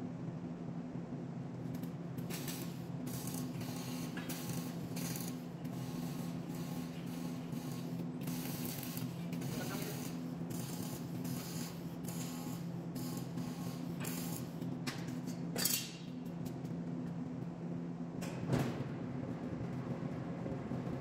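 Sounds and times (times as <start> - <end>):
welding arc crackling and hissing: 1.6 - 16.7.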